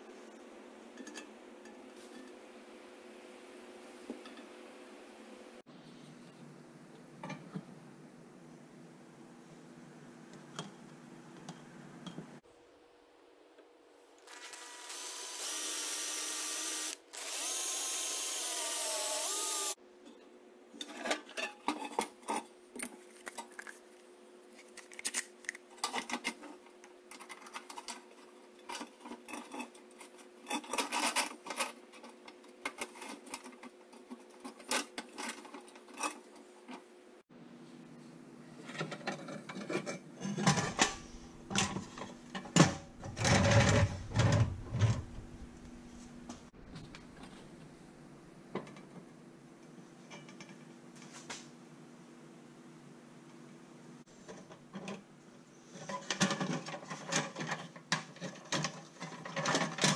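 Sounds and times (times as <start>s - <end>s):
drill running: 14.3s - 19.8s.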